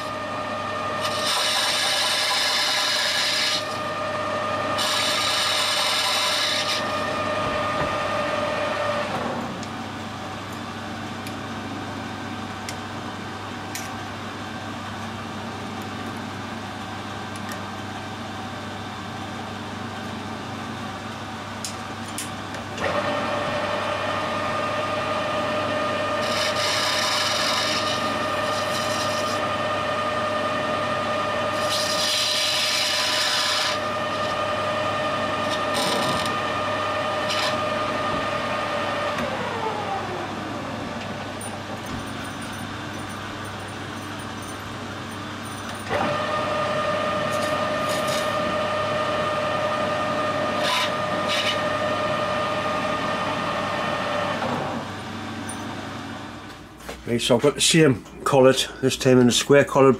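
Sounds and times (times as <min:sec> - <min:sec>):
metal lathe whining: 0:00.0 - 0:09.6, 0:22.8 - 0:44.6, 0:45.3 - 0:55.8.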